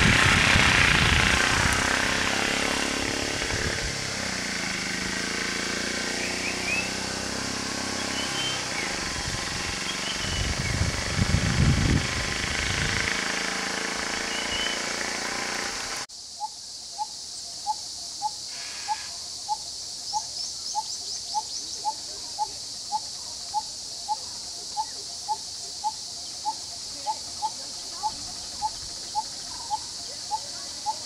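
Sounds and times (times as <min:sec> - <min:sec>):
high insect drone: 0:00.0 - 0:31.0
faint bird calls: 0:16.4 - 0:31.0.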